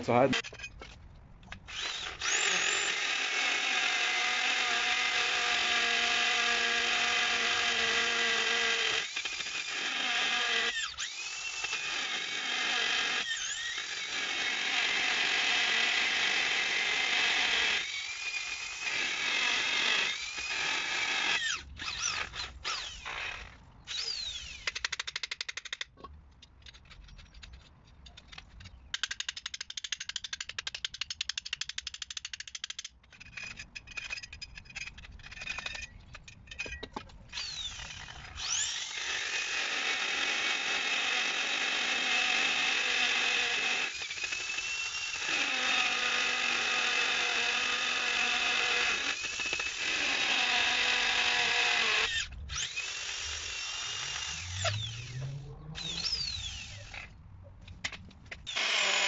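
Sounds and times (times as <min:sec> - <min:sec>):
electric drill whining: 0:01.7 - 0:24.9, 0:36.6 - 0:57.1, 0:58.5 - 0:59.0
scattered clicks and knocks: 0:24.6 - 0:37.2.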